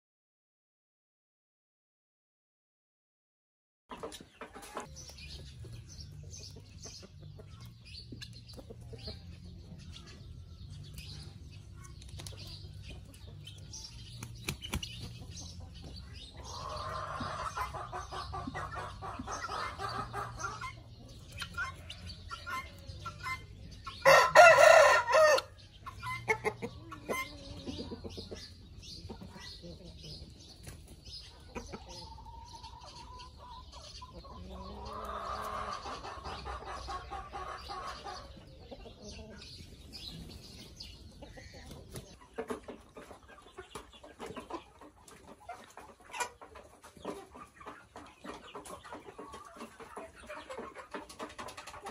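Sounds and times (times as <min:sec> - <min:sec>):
chickens clucking: 0:03.9 - 0:51.9
rooster crowing: 0:24.0 - 0:25.5.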